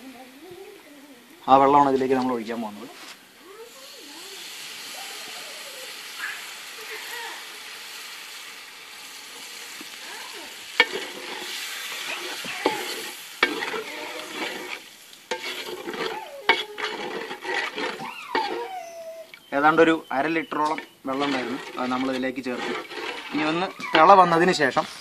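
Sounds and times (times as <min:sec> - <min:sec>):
stock sizzling in hot pan: 0:00.0 - 0:18.8, 0:19.5 - 0:25.0
wooden spatula scraping pan: 0:09.5 - 0:18.9, 0:19.7 - 0:24.9.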